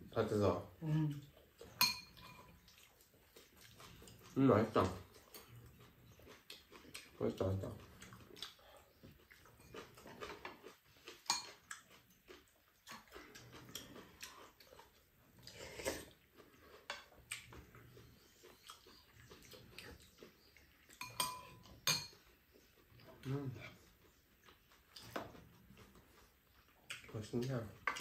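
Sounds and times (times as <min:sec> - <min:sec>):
quiet chewing: 0:00.2 - 0:28.0
spoon and chopsticks clicking on dishes: 0:11.3 - 0:11.6, 0:21.0 - 0:22.2.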